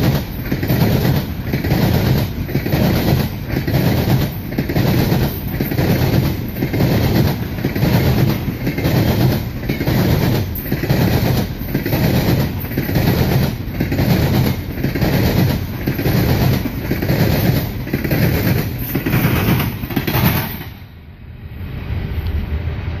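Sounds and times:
train wheels clacking: 0.0s - 20.9s
low rumble: 21.2s - 23.0s.

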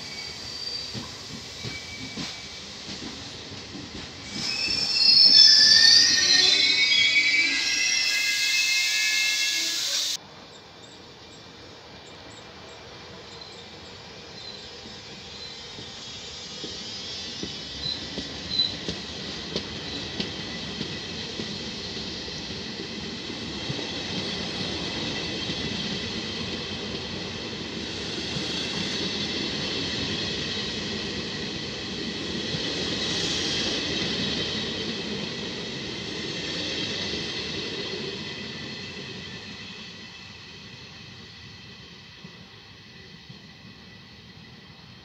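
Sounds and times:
high thin wheel squeal: 0.0s - 2.6s, 4.3s - 10.2s
train rumbling: 0.0s - 45.0s
train wheels clicking over rail joints: 0.8s - 5.7s, 14.4s - 35.3s.

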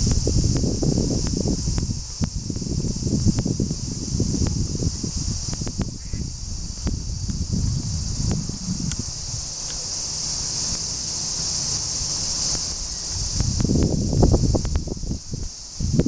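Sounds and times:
cicadas singing: 0.0s - 16.0s
low rumble: 5.7s - 9.6s.

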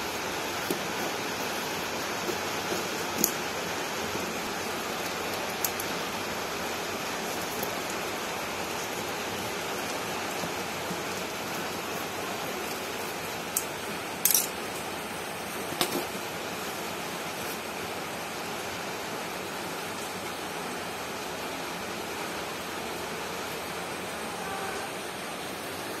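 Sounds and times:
bubble wrap crinkling: 0.0s - 13.6s
background hiss: 0.0s - 26.0s.

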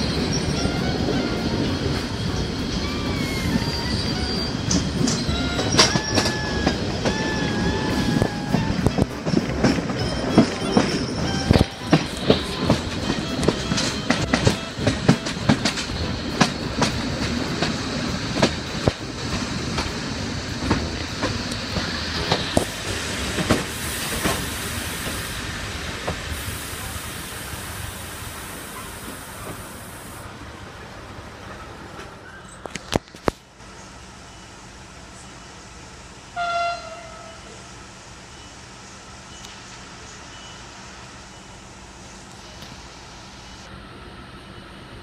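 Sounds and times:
high hiss: 0.0s - 32.0s, 37.0s - 45.0s
train wheels clattering over rails: 0.0s - 33.6s.

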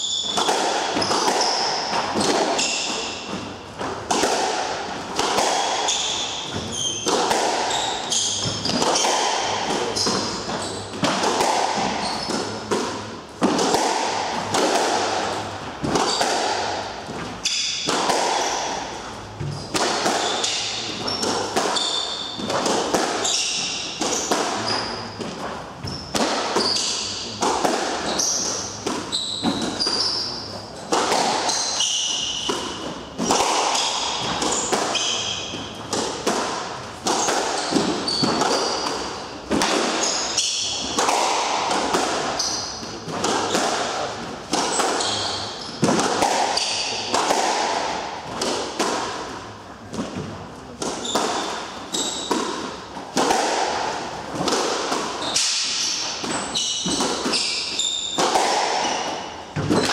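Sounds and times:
shoes squeaking on wooden floor: 0.0s - 4.0s, 5.3s - 12.8s, 18.5s - 27.4s, 28.0s - 36.0s, 37.2s - 38.9s, 39.8s - 41.5s, 44.6s - 45.8s, 51.0s - 52.4s, 55.2s - 59.9s
squash ball hitting rackets and walls: 0.0s - 59.9s.

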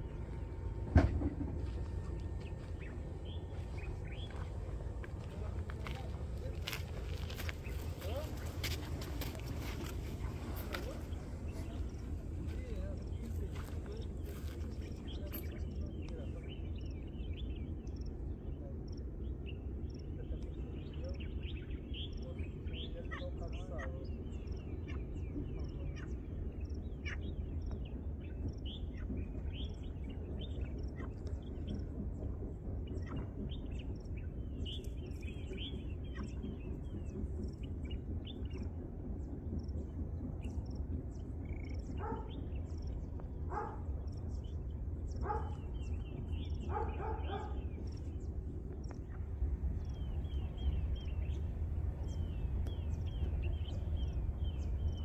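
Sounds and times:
low rumble: 0.0s - 55.0s
small birds chirping: 0.0s - 55.0s
animal calls: 41.4s - 42.7s, 43.4s - 44.3s, 45.2s - 48.2s.

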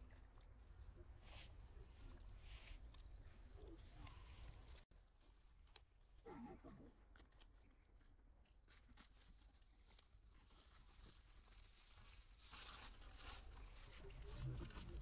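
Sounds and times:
rustling: 2.0s - 5.9s, 8.7s - 15.0s.

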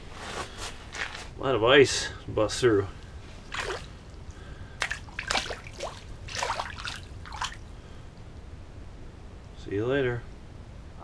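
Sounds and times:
water sloshing and splashing: 3.2s - 7.8s.

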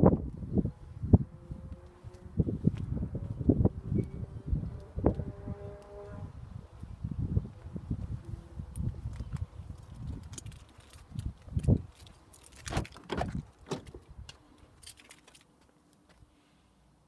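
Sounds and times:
wind rumble on microphone: 0.0s - 14.4s
clicks and knocks of car door: 12.6s - 14.0s.

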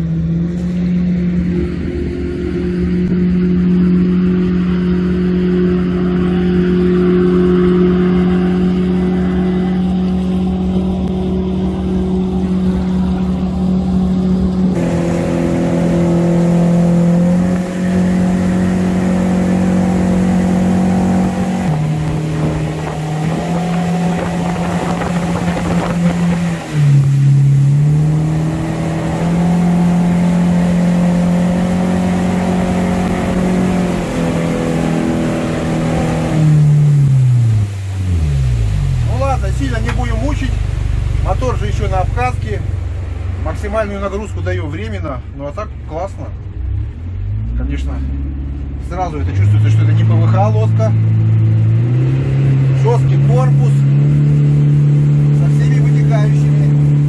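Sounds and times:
outboard engine running hard: 0.0s - 47.0s, 47.7s - 57.0s
water noise: 0.0s - 57.0s
wind noise: 9.4s - 29.6s.

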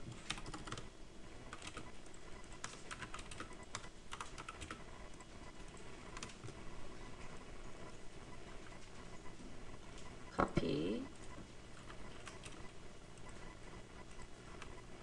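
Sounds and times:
computer keyboard typing: 0.0s - 6.6s, 11.1s - 15.0s.

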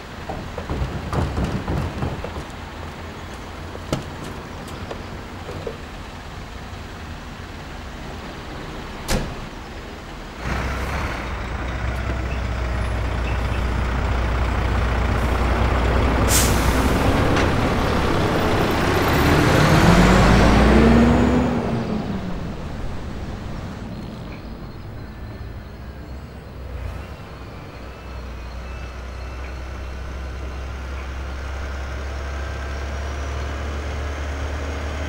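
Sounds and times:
truck diesel engine rumble: 0.0s - 35.0s
air-brake hiss: 16.3s - 17.1s.

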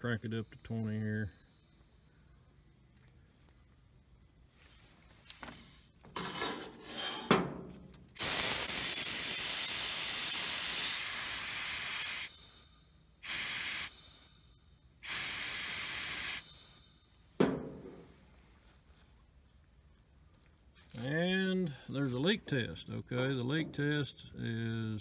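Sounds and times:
oxygen hissing from a torch: 8.2s - 12.5s, 13.2s - 14.1s, 15.0s - 16.6s
sharp knock: 17.4s - 18.1s.

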